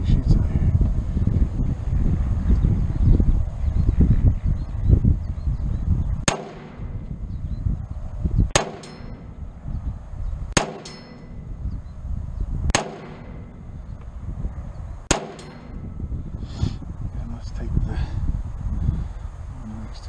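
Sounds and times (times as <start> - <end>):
wind rumble on microphone: 0.0 - 20.0
rifle shots: 6.3 - 7.1, 8.5 - 9.3, 10.6 - 11.1, 12.7 - 13.7, 15.1 - 15.8
metallic ring of steel target: 6.3 - 7.4, 8.4 - 9.8, 10.5 - 11.9, 12.6 - 14.0, 15.0 - 16.4.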